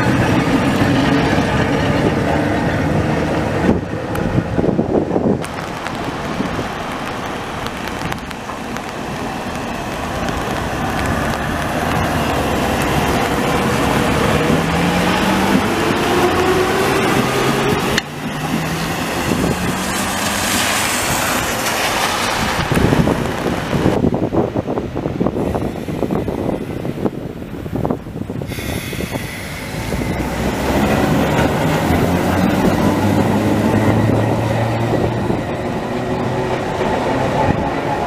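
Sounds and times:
tram rolling on wet rails: 0.0 - 38.0
steady wet hiss: 28.5 - 30.0.

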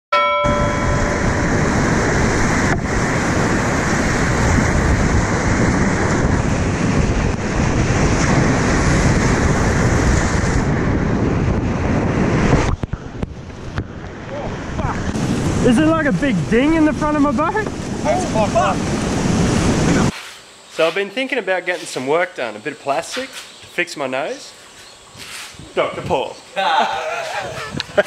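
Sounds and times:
wind buffeting microphone: 0.4 - 20.1, 25.0 - 28.0
water rushing over rapids: 14.4 - 20.2.

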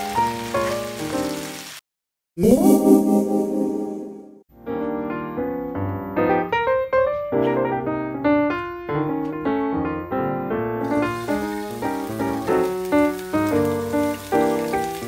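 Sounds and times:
piano music: 0.0 - 1.8, 2.4 - 15.0
vegetables sizzling in hot oil: 0.0 - 1.8, 10.8 - 15.0.

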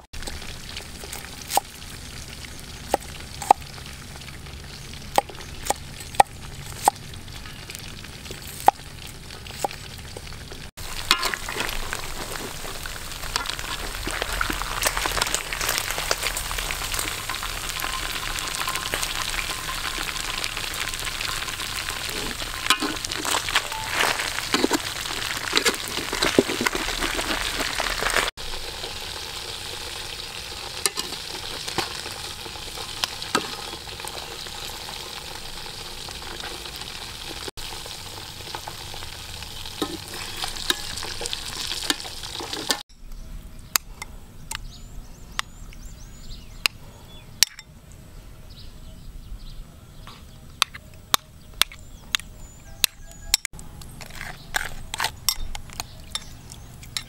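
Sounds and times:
food deep-frying in oil: 0.0 - 42.9.

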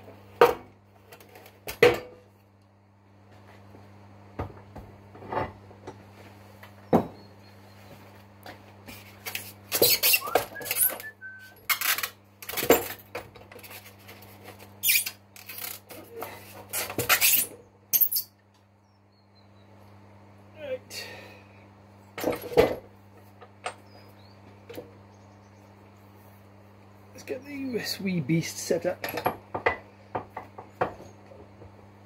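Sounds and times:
steady low hum: 0.0 - 32.0
brief squeak: 9.8 - 11.8, 14.8 - 15.2
metal tools clinking and clattering: 29.0 - 29.4.

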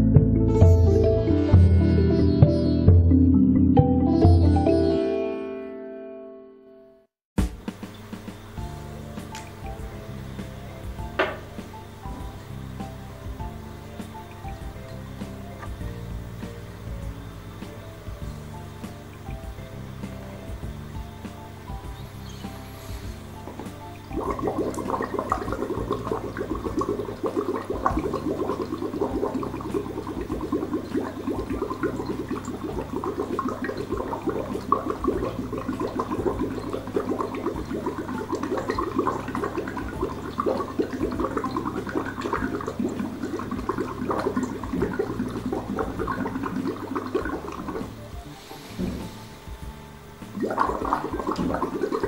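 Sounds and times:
bubbling water through a tube: 23.0 - 48.2, 50.3 - 52.0.

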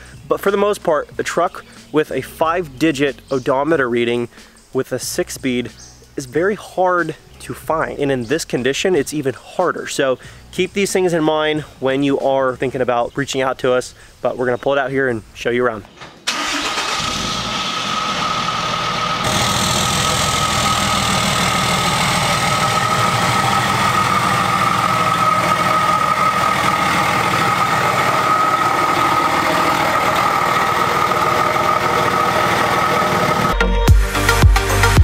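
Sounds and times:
diesel engine idling: 16.3 - 33.6.

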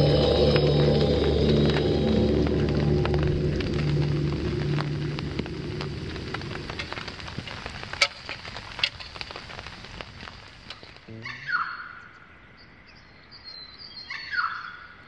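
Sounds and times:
campfire crackling and popping: 0.0 - 11.2
bird call: 13.6 - 15.0.

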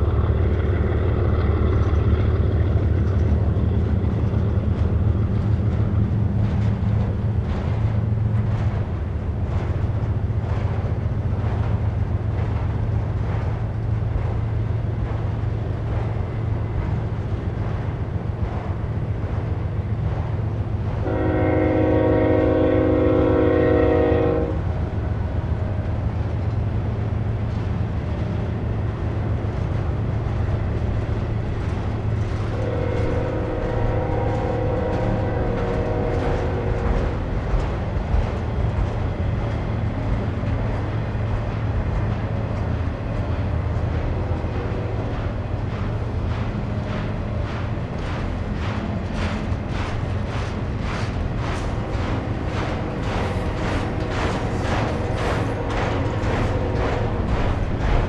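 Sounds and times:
freight train rumbling past: 0.0 - 58.0
locomotive air horn chord: 21.0 - 24.6, 32.6 - 36.7.

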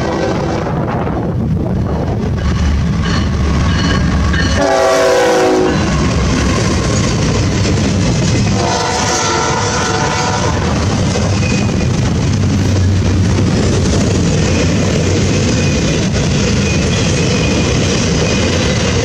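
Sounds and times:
diesel locomotive engine rumble: 0.0 - 19.0
train wheels on rails: 0.0 - 19.0
locomotive air horn: 4.6 - 5.9, 8.5 - 10.8.

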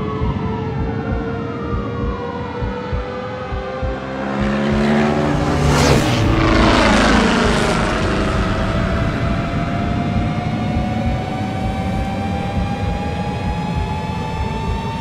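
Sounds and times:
dirt bike engine passing: 4.0 - 10.2.

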